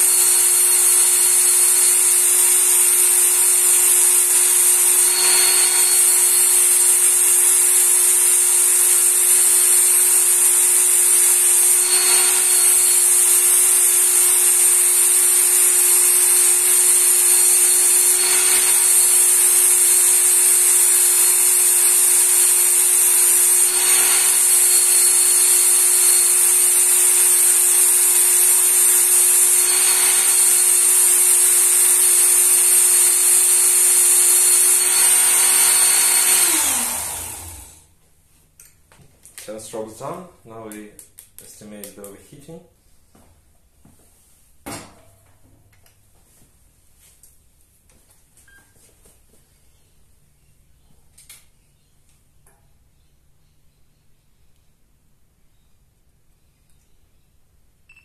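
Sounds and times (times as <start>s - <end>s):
belt sander motor running: 0.0s - 37.9s.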